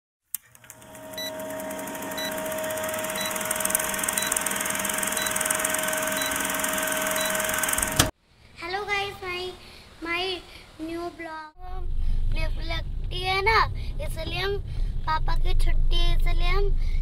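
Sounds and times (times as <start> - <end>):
film projector whirring hum: 0.4 - 8.1.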